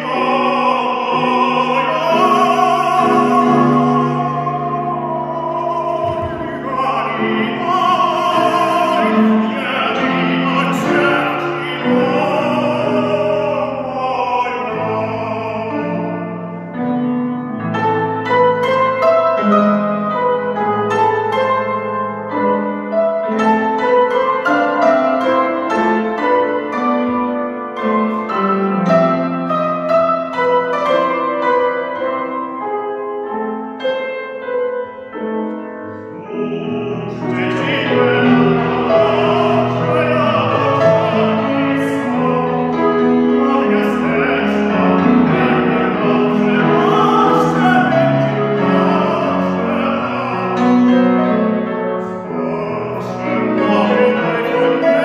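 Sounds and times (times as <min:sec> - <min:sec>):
tenor singing operatically: 0:00.0 - 0:16.3, 0:35.9 - 0:51.3, 0:52.0 - 0:55.0
grand piano: 0:00.0 - 0:55.0.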